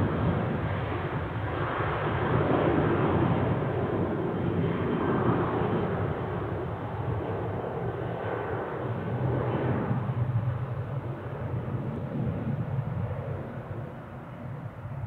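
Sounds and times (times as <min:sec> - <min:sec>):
jet engines at takeoff: 0:00.0 - 0:15.0.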